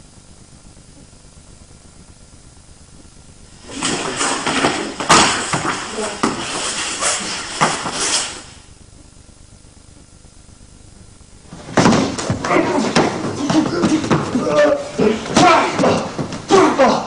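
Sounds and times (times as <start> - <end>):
tape hiss: 0.0 - 17.0
scuffling on a mat: 3.6 - 8.6, 11.4 - 17.0
sharp slaps: 3.8 - 6.4.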